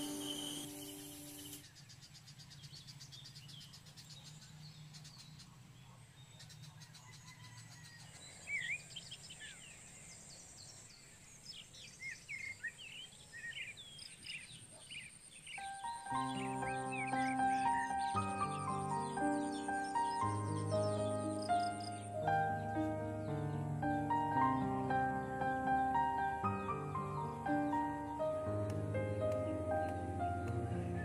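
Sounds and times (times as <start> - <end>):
music: 0.0 - 1.6, 15.6 - 31.0
small birds chirping: 0.0 - 31.0.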